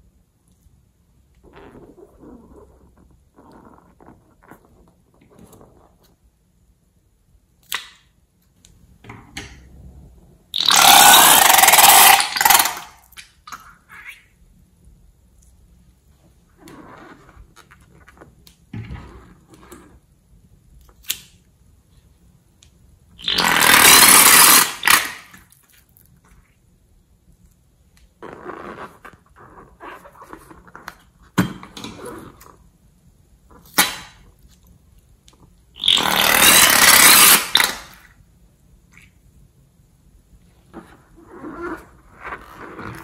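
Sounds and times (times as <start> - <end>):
balloon neck sputtering: 10.6 - 12.9, 23.2 - 25.2, 35.8 - 37.9.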